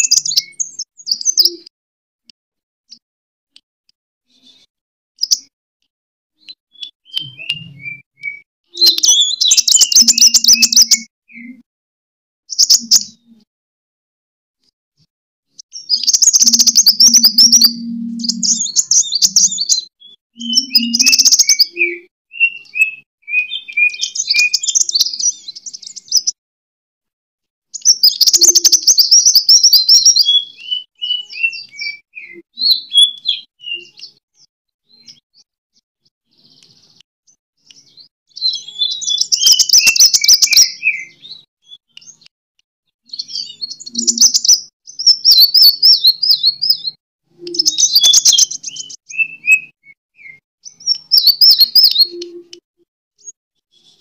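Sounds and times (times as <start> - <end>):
bird singing rasping trills: 6.7 - 11.5, 16.0 - 19.8, 20.4 - 26.0.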